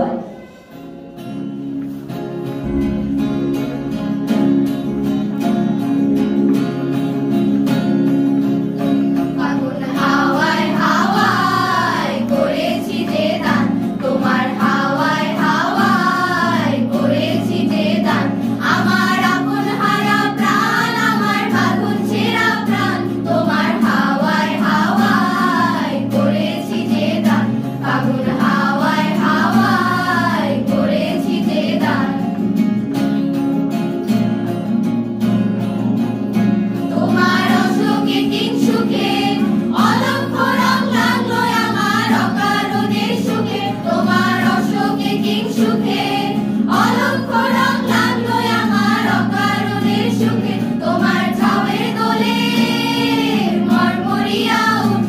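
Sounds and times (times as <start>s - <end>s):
choir singing: 0.0s - 0.8s, 9.3s - 32.5s, 36.9s - 55.0s
acoustic guitars: 0.0s - 55.0s.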